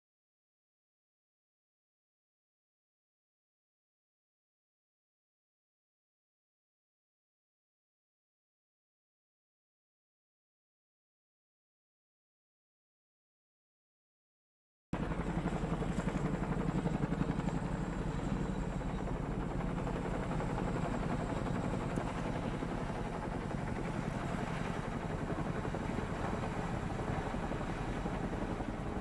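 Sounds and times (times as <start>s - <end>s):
helicopter rotor chop: 15.0s - 29.0s.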